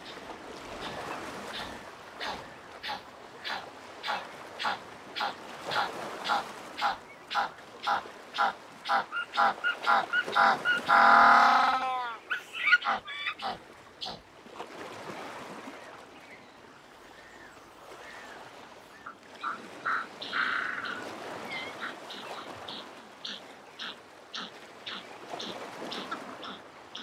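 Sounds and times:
penguins honking and braying: 0:06.3 - 0:14.2.

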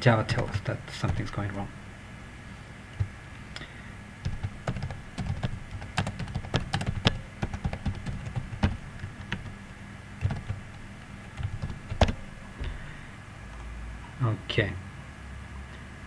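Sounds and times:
typing on computer keyboard: 0:04.2 - 0:12.4.

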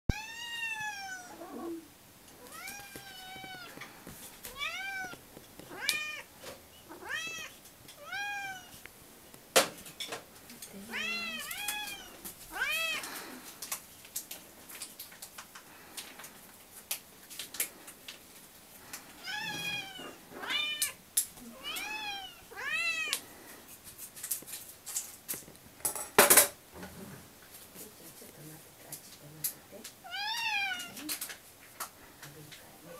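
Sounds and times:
cats meowing: 0:00.1 - 0:08.8, 0:10.7 - 0:13.5, 0:19.1 - 0:23.3, 0:30.0 - 0:31.2.

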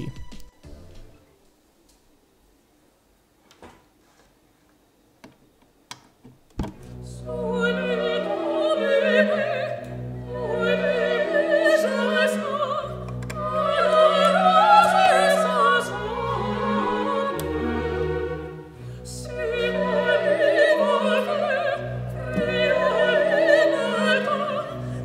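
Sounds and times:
operatic singing with orchestra: 0:07.0 - 0:25.0.

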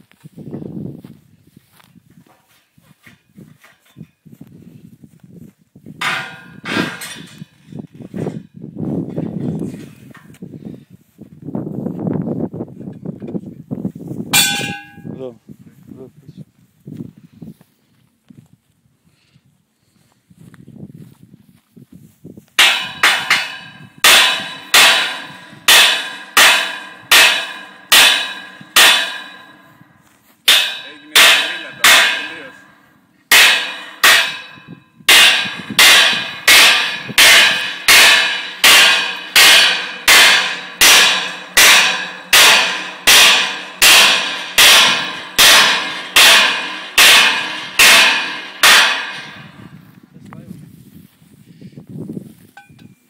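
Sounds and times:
hammer striking steel: 0:06.0 - 0:07.6, 0:14.4 - 0:15.2, 0:22.6 - 0:49.6.

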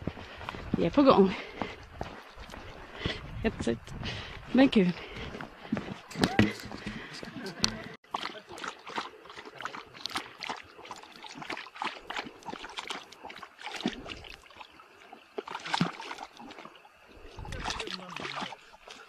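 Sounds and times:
dog lapping water: 0:06.8 - 0:19.0.

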